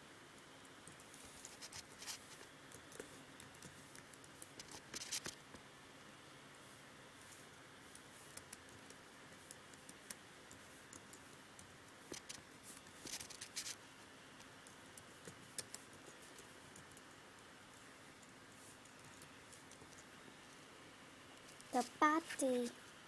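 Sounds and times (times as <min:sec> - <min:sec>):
quiet room hum: 0:00.0 - 0:23.0
computer keyboard typing: 0:02.7 - 0:05.4, 0:07.9 - 0:12.4, 0:14.4 - 0:17.5, 0:18.2 - 0:20.1.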